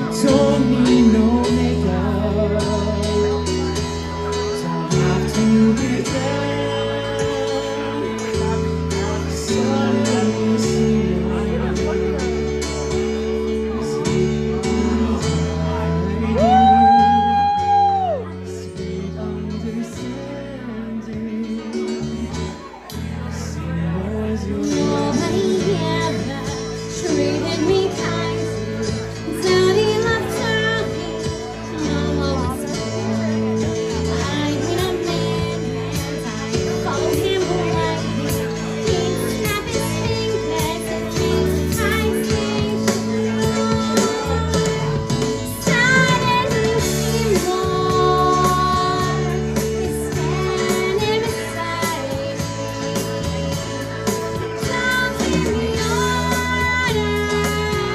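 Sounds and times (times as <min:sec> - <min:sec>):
music backing track: 0:00.0 - 0:57.9
woman singing into microphone: 0:00.0 - 0:57.9.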